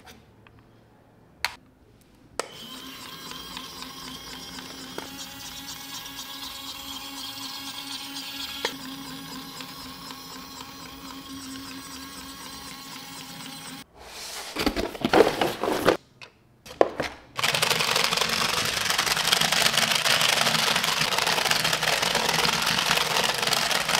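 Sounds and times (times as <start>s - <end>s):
harsh toy motor whirr: 2.4s - 13.9s, 17.4s - 23.9s
toy electric motor whirring: 2.4s - 13.9s, 17.4s - 23.9s
handling noises: 14.1s - 17.4s.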